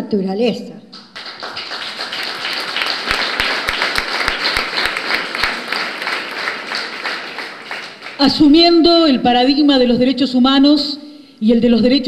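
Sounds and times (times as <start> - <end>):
audience applauding: 1.0 - 8.6.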